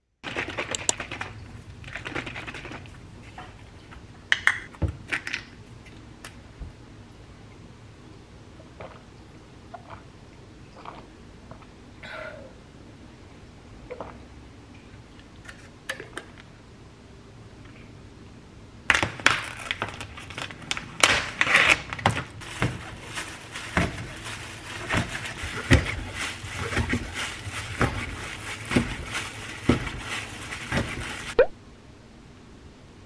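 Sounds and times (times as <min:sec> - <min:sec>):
plastic film crackling: 0:18.9 - 0:31.4.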